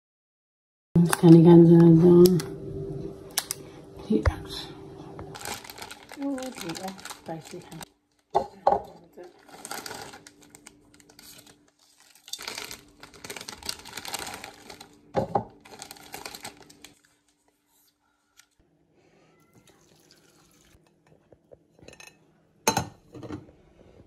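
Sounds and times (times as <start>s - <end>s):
plastic packet ripping: 5.3s - 8.3s, 9.2s - 17.2s
plastic packets crinkling: 5.3s - 8.3s, 8.9s - 17.4s.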